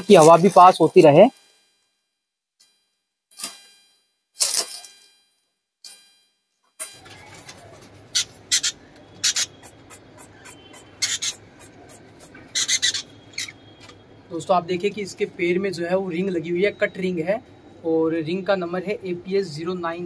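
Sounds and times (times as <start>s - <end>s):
newspaper and cage wire rustling: 6.8s - 8.6s
parrots chirping: 7.0s - 14.2s.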